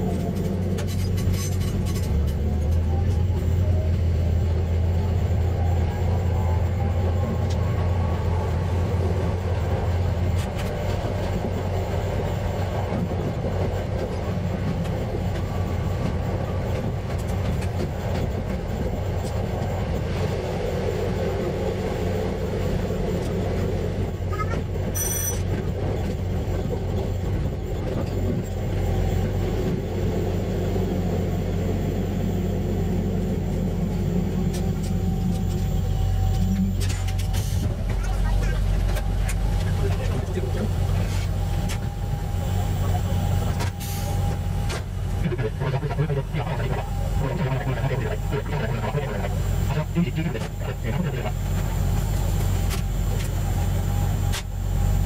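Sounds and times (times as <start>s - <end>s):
railcar engine drone: 0.0s - 55.0s
wheel and rail rumble: 0.0s - 55.0s
high-pitched beep: 25.0s - 25.4s.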